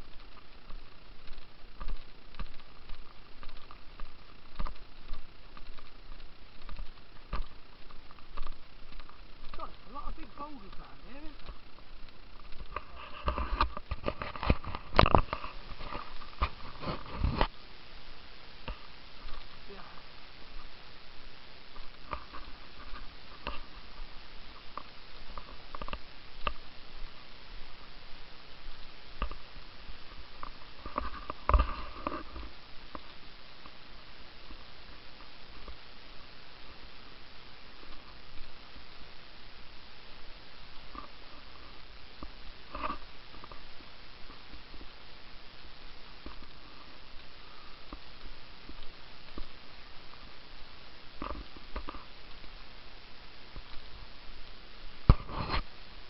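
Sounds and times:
footsteps on stony path: 0.0 - 35.9
steady low hiss: 0.0 - 56.0
handheld camera clicks and thumps: 12.5 - 17.5.

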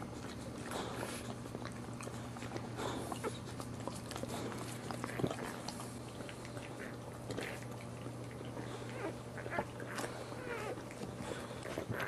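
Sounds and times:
dog licking and snuffling: 0.0 - 12.0
puppies squeaking: 8.6 - 12.0.

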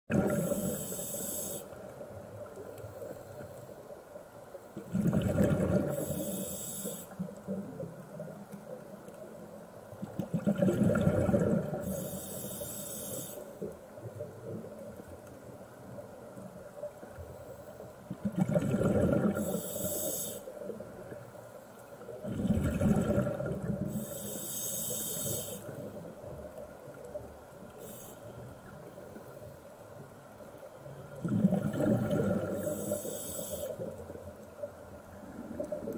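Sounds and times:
exhaled bubbles gushing: 0.1 - 0.8, 4.8 - 6.1, 10.1 - 11.9, 18.1 - 19.6, 22.2 - 24.0, 31.2 - 32.8.

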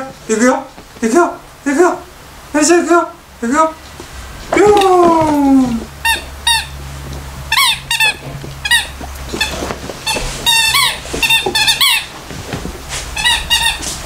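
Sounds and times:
dog chewing squeaky toy: 5.8 - 12.2, 13.1 - 14.0.

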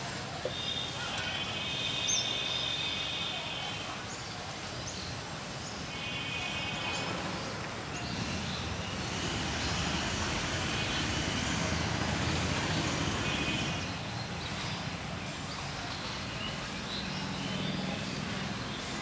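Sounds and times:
vehicle passing: 7.1 - 13.9.

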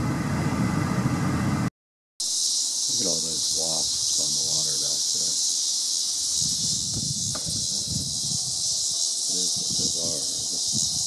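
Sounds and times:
insects droning: 2.2 - 11.0.

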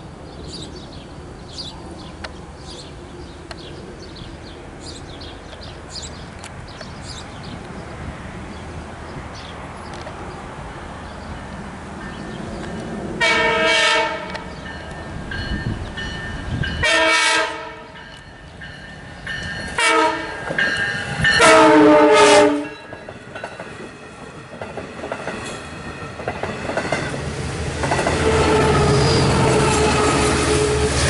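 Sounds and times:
diesel locomotive engine drone: 0.0 - 31.0
train coaches rumbling and clattering: 0.0 - 31.0
train horn blasts: 13.2 - 14.5, 16.8 - 18.0, 19.8 - 20.5, 21.3 - 22.9, 28.0 - 31.0.

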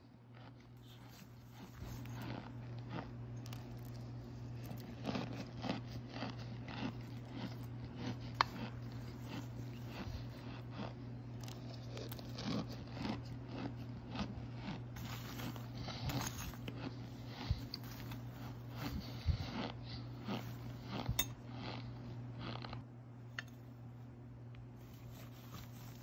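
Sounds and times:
spoon crunching hard chunks: 0.3 - 22.8.

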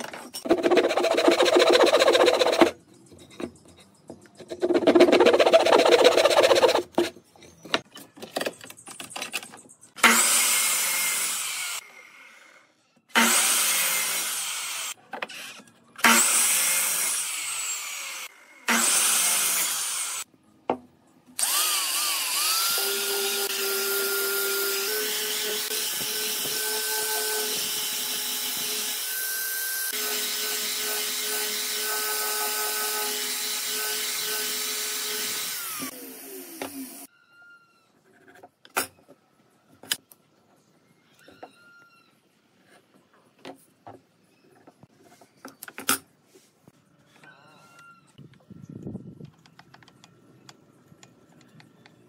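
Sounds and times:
hand saw cutting wood: 0.4 - 2.8, 4.5 - 7.1
angle grinder sanding wood: 0.5 - 2.7, 4.7 - 6.9
miter saw cutting: 21.4 - 37.1.

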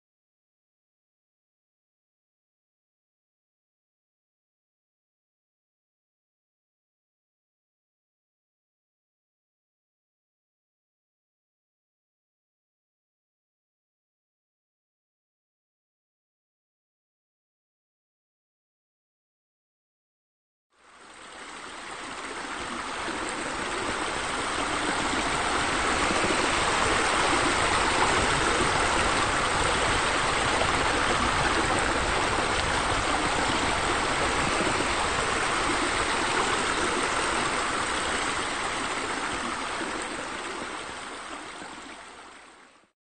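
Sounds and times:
running splashing water: 21.9 - 42.3.

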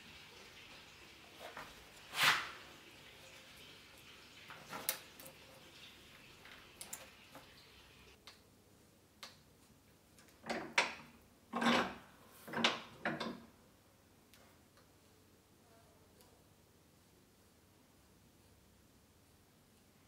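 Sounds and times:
bench vise handle creaking turns: 10.4 - 13.4.

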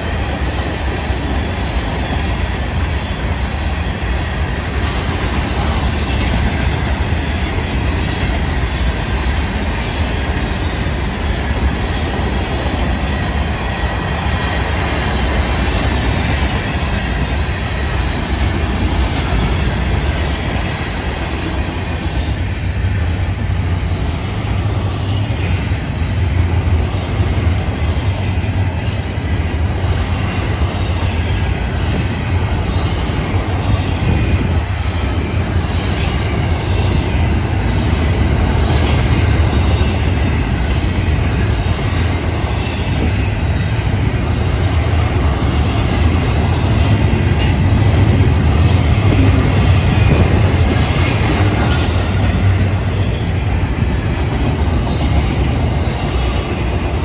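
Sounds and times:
train wheels rumbling on rail: 0.0 - 57.0
faint high wheel squeal: 51.6 - 52.2.

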